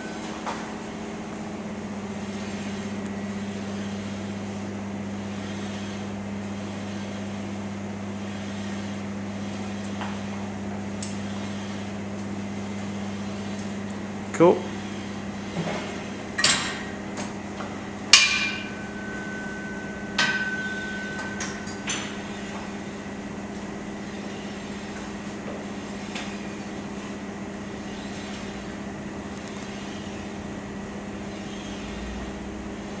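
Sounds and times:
steady low hum: 0:00.0 - 0:33.0
gym weights clanking: 0:18.2 - 0:22.9.

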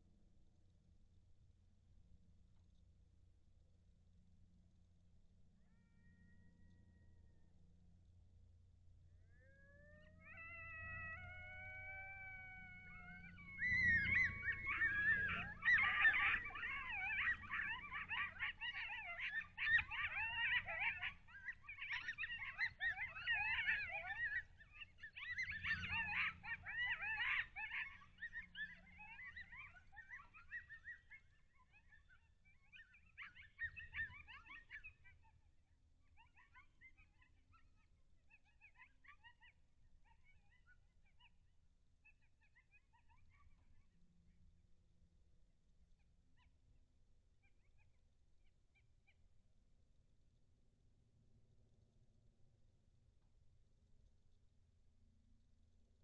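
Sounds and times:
coyotes yelping and yipping: 0:09.2 - 0:41.4, 0:42.0 - 0:44.0, 0:47.4 - 0:48.0.

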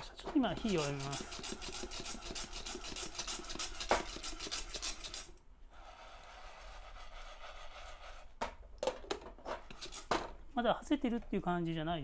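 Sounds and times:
coffee beans rattling in pot: 0:00.6 - 0:05.3.

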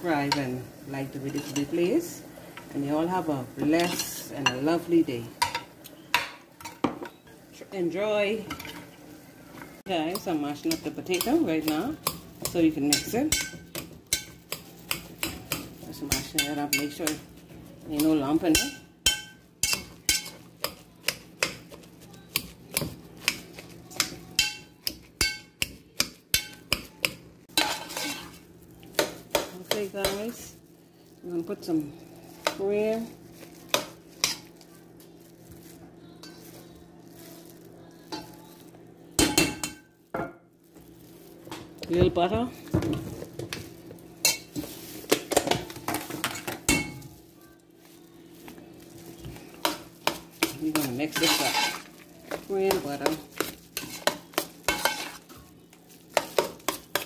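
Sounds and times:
metal spoon scraping pot: 0:27.6 - 0:28.4, 0:49.6 - 0:51.9.

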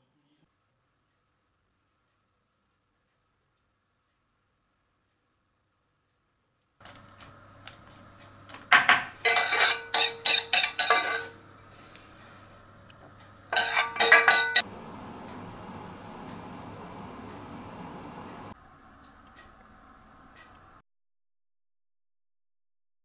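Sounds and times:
pans and utensils clattering: 0:08.7 - 0:11.4, 0:13.5 - 0:14.6.

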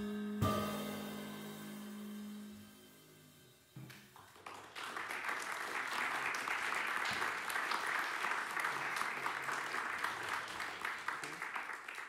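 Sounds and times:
audience applause: 0:04.2 - 0:12.0.

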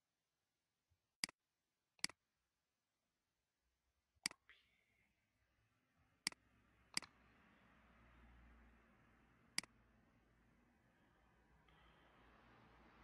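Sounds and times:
computer mouse clicks: 0:06.2 - 0:07.1.

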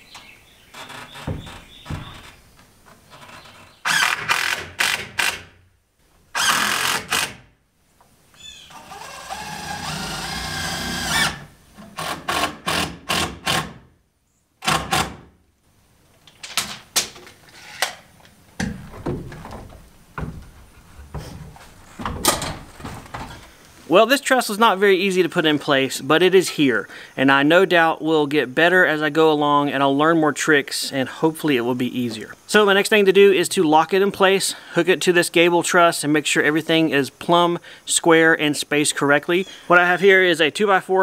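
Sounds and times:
wood scraping: 0:00.0 - 0:05.4, 0:16.3 - 0:23.9
knocks of wood on wood: 0:00.9 - 0:02.4, 0:18.6 - 0:23.5.

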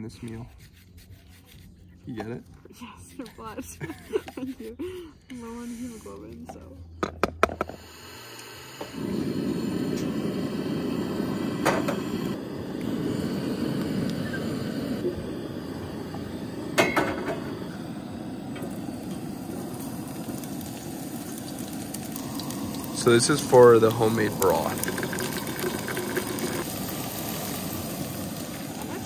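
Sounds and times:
camp stove burner rushing: 0:07.0 - 0:29.0.

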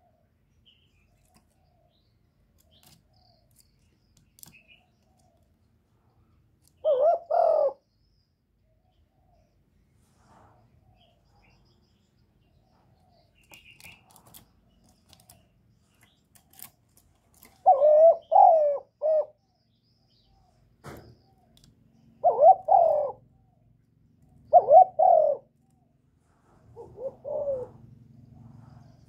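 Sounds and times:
dove cooing: 0:06.7 - 0:07.9, 0:17.4 - 0:19.4, 0:22.2 - 0:23.7, 0:24.3 - 0:25.7, 0:26.6 - 0:29.0.

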